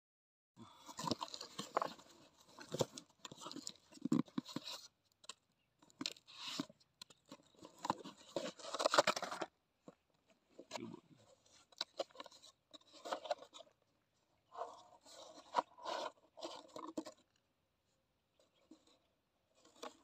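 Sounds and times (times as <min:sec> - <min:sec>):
cardboard scraping and crinkling: 0:00.8 - 0:13.8, 0:14.5 - 0:17.4.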